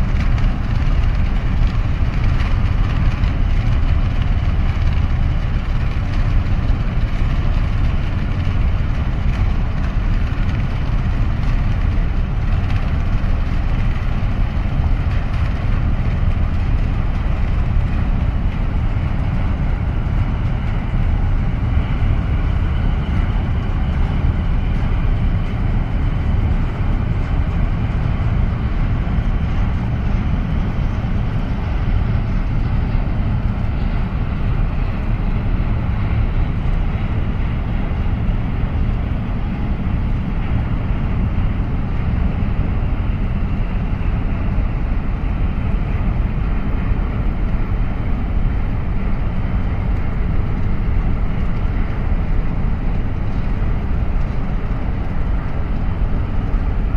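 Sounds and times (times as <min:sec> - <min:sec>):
ship engine low rumble: 0:00.0 - 0:56.9.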